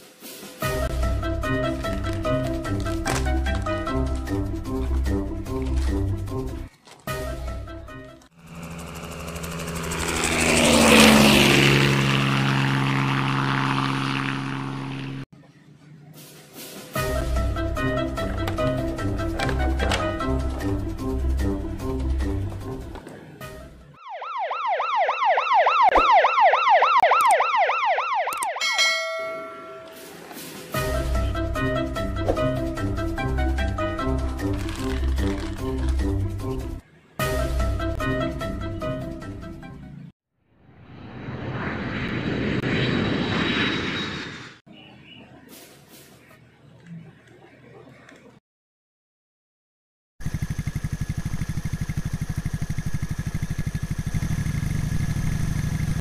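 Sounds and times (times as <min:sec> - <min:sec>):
police siren yelping: 0:24.0 - 0:29.9.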